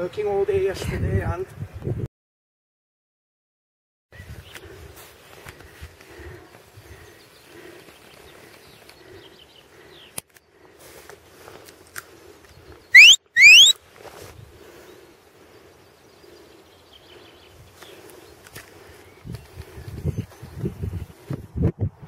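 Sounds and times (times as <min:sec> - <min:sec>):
rising whistle blasts: 0:13.0 - 0:13.8.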